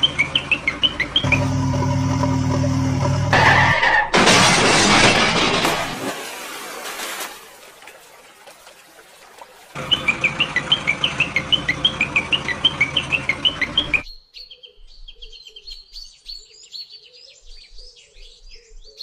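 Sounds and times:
small birds chirping: 0.0s - 1.6s, 9.2s - 19.0s.

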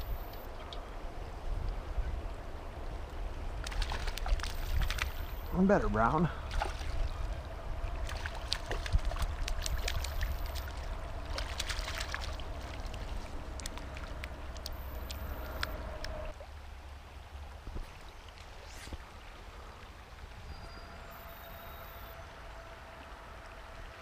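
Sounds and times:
river current flowing and splashing: 0.0s - 24.0s
fish thrashing in water: 3.6s - 5.3s, 7.9s - 15.3s
low rumble: 6.3s - 16.9s.

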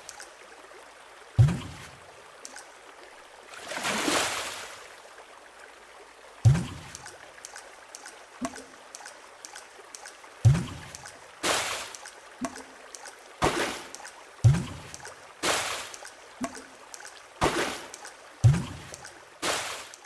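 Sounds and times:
drip-like ticks: 0.0s - 0.4s, 1.4s - 2.8s, 6.4s - 20.0s
bright splash: 3.6s - 4.8s, 10.4s - 12.6s, 13.4s - 16.6s, 17.4s - 20.0s.

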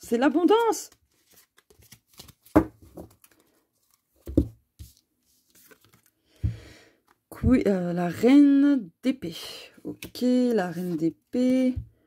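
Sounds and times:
cards rustling: 0.4s - 6.2s.

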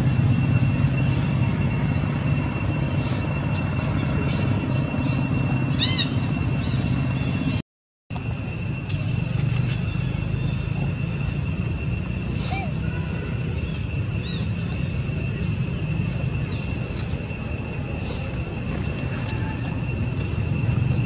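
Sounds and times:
high-pitched whine: 0.0s - 21.0s
baby monkey squeaky call: 5.7s - 6.8s
low rumble: 8.2s - 21.0s.

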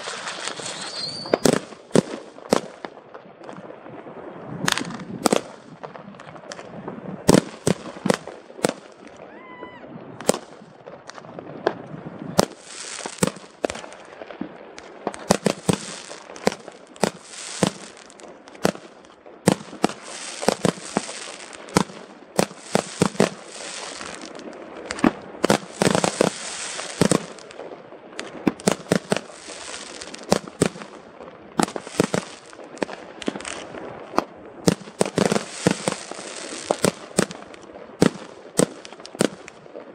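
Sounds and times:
fireworks hiss: 0.0s - 2.6s, 12.4s - 14.0s, 15.1s - 18.9s, 19.5s - 27.6s, 28.2s - 31.0s, 31.6s - 33.8s, 34.7s - 39.5s
fireworks bangs: 0.0s - 39.9s.

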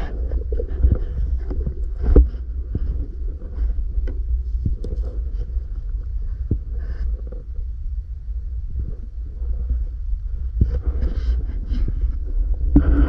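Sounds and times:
underwater clicks and knocks: 0.0s - 5.5s
underwater low rumble: 0.0s - 13.0s.

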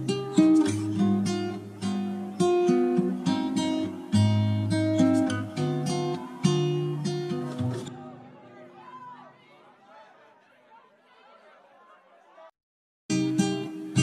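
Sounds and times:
acoustic guitar music: 0.0s - 8.8s, 13.1s - 14.0s.

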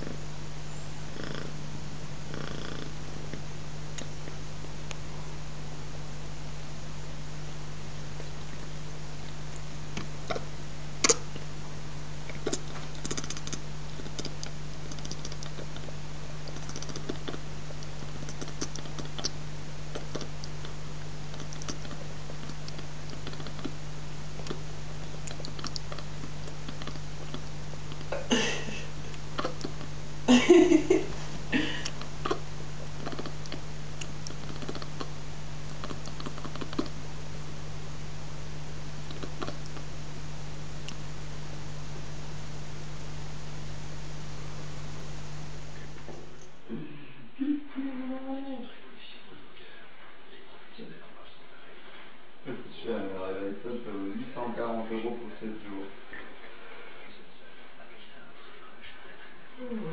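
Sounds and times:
low hum: 0.0s - 59.9s
cat chattering: 12.3s - 20.8s, 21.4s - 23.8s, 24.4s - 28.2s, 29.4s - 30.0s, 31.9s - 36.9s.

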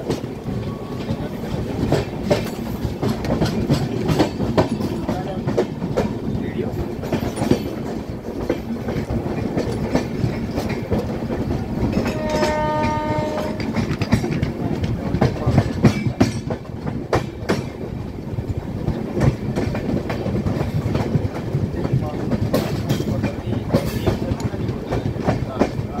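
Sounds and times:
train wheels clicking over rail joints: 0.0s - 26.0s
train horn: 11.9s - 13.9s.

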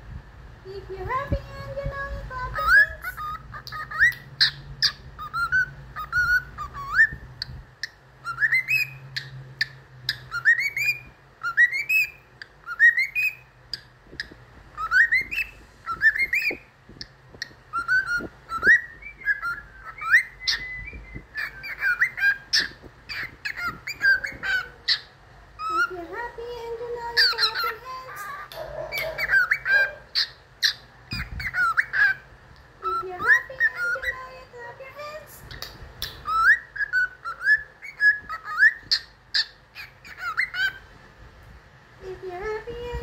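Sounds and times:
cockatiel whistling: 2.6s - 16.7s, 17.7s - 25.9s, 27.2s - 32.2s, 35.5s - 40.8s
sharp bird chirps: 17.7s - 25.9s.

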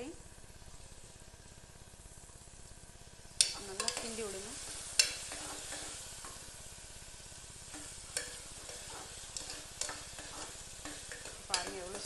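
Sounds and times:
onions sizzling in oil: 0.0s - 12.0s
ladle scraping pot: 3.8s - 6.0s, 7.7s - 12.0s.

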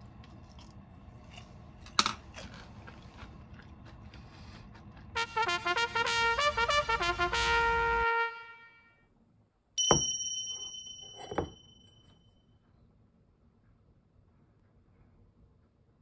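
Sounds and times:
brass-like musical jingle: 5.2s - 8.9s
sharp bell-like ding: 9.8s - 12.1s.

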